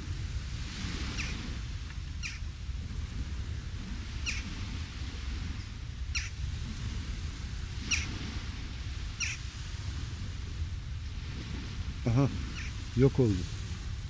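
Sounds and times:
bird chirping: 2.2 - 2.4.

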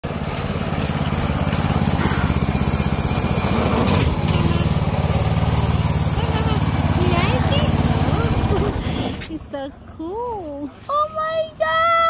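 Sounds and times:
small gas engine puttering: 0.0 - 9.5.

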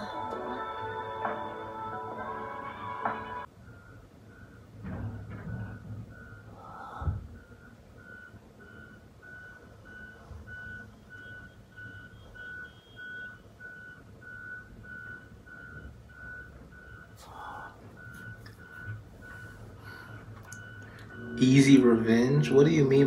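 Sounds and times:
electronic alarm beeping: 7.4 - 23.0.

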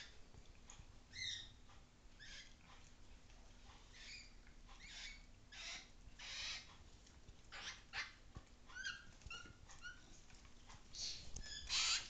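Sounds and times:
animal squeaky chirps: 1.1 - 1.5, 3.9 - 6.7, 7.5 - 10.0, 11.0 - 12.0.

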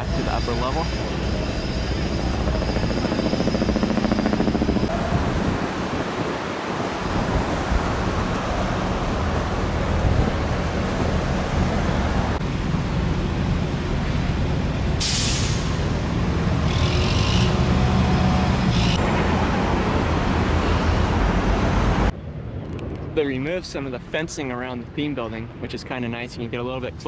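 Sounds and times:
air brake hisses: 15.0 - 15.8.

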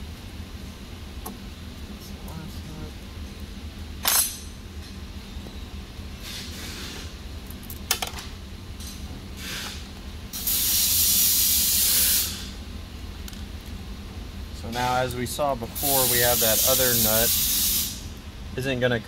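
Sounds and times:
low steady hum: 0.0 - 19.0
loud rubbing hiss: 6.2 - 7.2, 9.4 - 9.8, 10.4 - 12.6, 15.7 - 18.1.

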